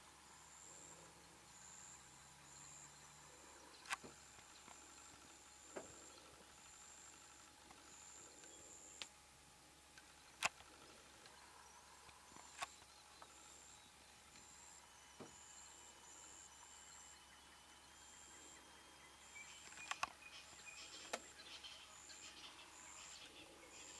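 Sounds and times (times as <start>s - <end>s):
high-pitched insect call: 14.5s - 23.9s.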